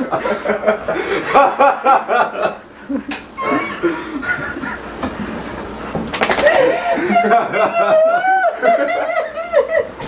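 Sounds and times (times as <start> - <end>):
people talking and laughing: 6.4 - 10.0.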